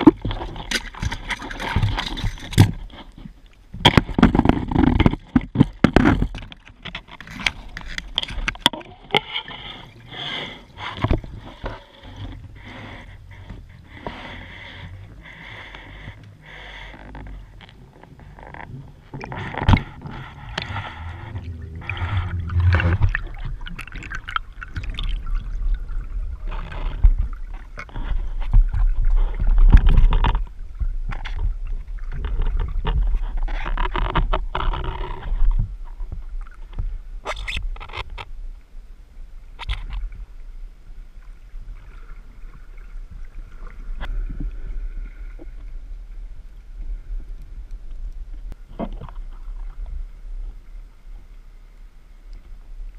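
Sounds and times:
knocks and scrapes of gear: 0:00.0 - 0:24.4
faint steady whine: 0:00.0 - 0:52.9
water rushing and gurgling: 0:04.9 - 0:37.6.

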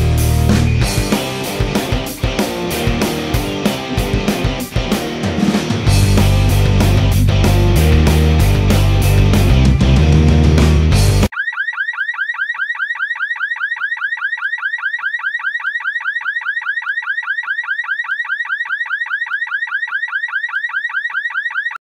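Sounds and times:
rock music: 0:00.0 - 0:11.3
electronic alarm chirping: 0:11.3 - 0:21.8.

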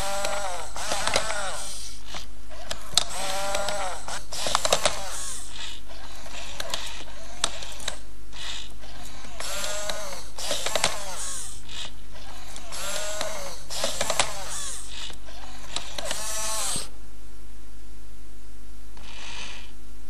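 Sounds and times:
servo motors clicking and ratcheting: 0:00.0 - 0:16.9, 0:19.0 - 0:19.7
robot dog electronic meows: 0:02.5 - 0:16.9.

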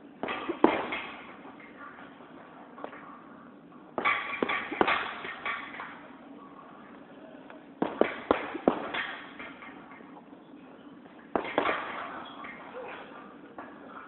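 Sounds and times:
punches thudding on punching bag: 0:00.2 - 0:01.3, 0:04.0 - 0:05.7, 0:07.8 - 0:09.3, 0:11.3 - 0:12.2.

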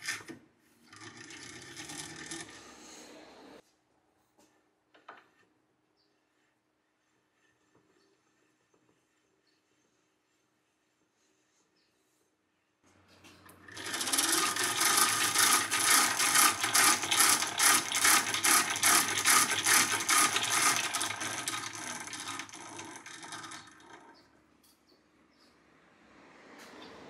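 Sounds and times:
hand-cranked gears whirring and clicking: 0:00.0 - 0:02.8, 0:13.4 - 0:24.3.

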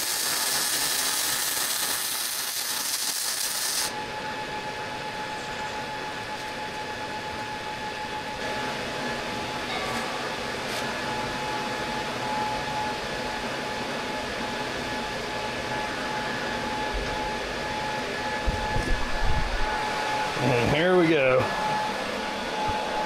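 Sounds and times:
shop equipment humming and whining: 0:00.0 - 0:23.0.

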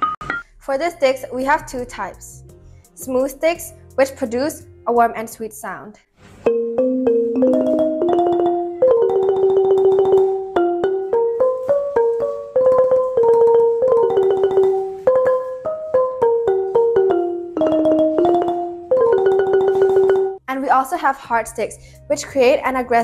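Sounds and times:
wooden xylophone melody: 0:06.4 - 0:20.4.

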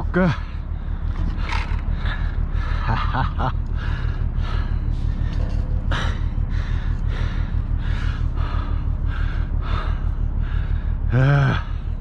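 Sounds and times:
low rumble: 0:00.0 - 0:12.0
person breathing hard: 0:00.3 - 0:12.0
person grunting: 0:11.1 - 0:11.8.

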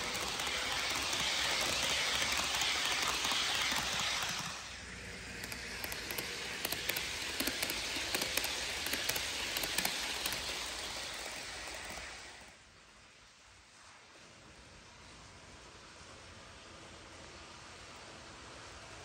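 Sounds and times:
wheels clicking over rail joints: 0:00.0 - 0:12.6
model train wheels hissing: 0:00.0 - 0:12.7.

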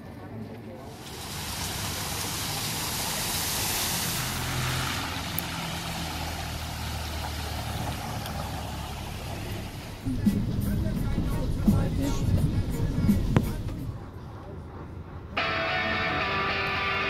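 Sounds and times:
tyres splashing through water: 0:00.9 - 0:14.0
car engine hum: 0:00.9 - 0:15.4.

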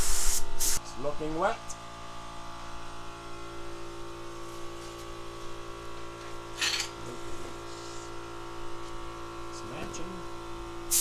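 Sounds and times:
paint spray gun hiss: 0:00.0 - 0:00.8
steady hum: 0:00.0 - 0:11.0.

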